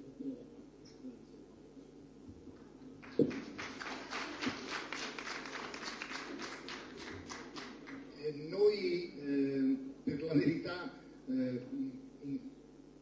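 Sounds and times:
scattered clapping: 3.0s - 8.1s.

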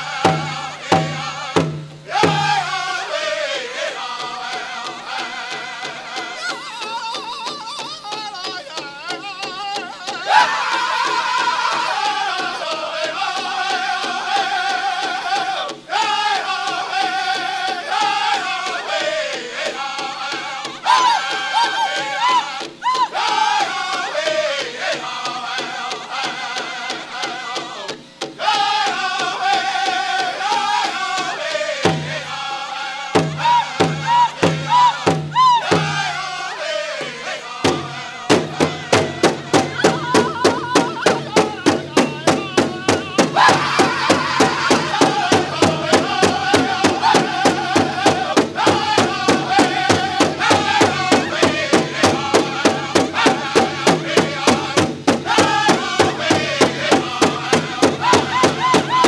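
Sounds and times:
big drum beating: 0.0s - 3.1s, 27.8s - 32.4s, 33.2s - 59.0s
men singing in high voices: 0.0s - 59.0s.

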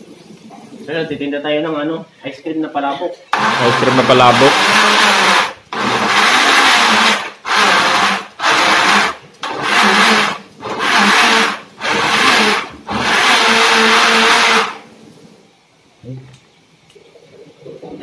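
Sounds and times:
blender motor whirring and chopping: 3.4s - 14.8s.

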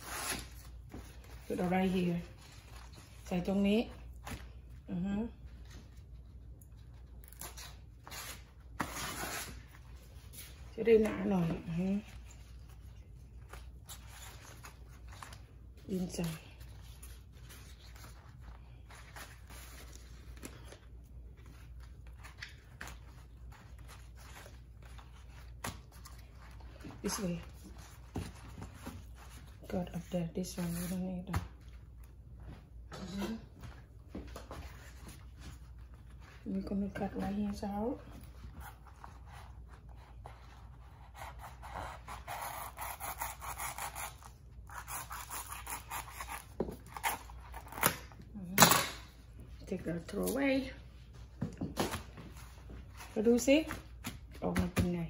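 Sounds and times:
knife scraping and slicing leaf: 40.8s - 48.0s.

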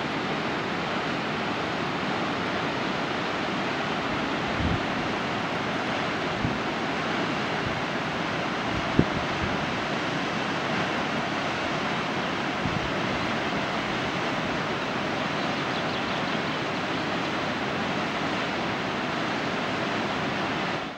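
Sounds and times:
waterfall rushing: 0.0s - 20.9s
wind rumble on microphone: 4.4s - 5.1s, 6.3s - 6.7s, 8.7s - 9.9s, 12.6s - 13.2s.

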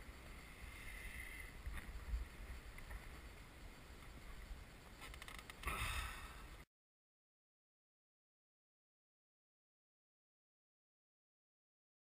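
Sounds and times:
wind rumble on microphone: 0.0s - 6.6s.

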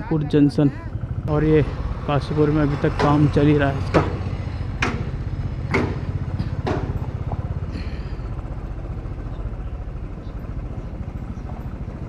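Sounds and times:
motorcycle engine running: 0.0s - 12.0s
sharp knocks: 2.8s - 7.5s.

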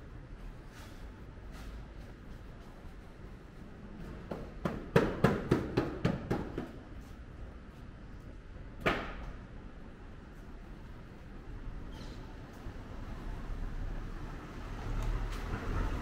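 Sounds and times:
sharp knocks: 4.3s - 6.8s.

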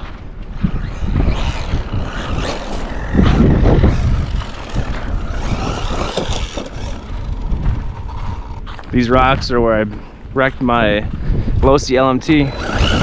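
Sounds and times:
electric motor and drivetrain whine: 0.0s - 8.9s, 12.1s - 13.0s
wind on microphone: 0.0s - 13.0s.

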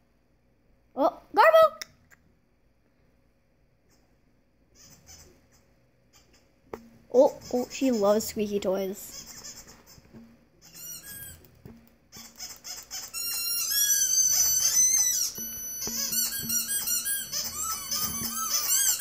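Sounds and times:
squeaky toy squeaks: 4.7s - 6.5s, 7.3s - 19.0s.

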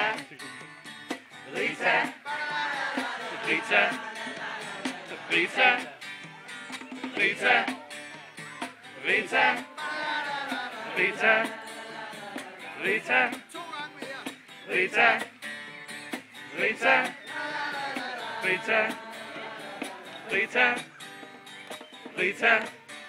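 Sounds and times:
group singing in unison: 0.0s - 0.2s, 1.4s - 6.0s, 6.9s - 7.8s, 8.9s - 13.5s, 14.6s - 15.4s, 16.1s - 20.9s, 22.0s - 22.8s
strummed acoustic guitar: 0.0s - 23.0s.

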